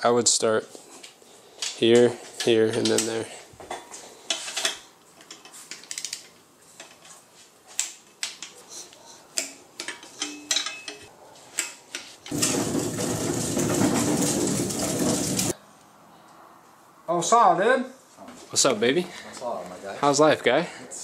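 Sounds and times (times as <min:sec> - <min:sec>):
hand tools clinking on metal: 0:09.4 - 0:15.6.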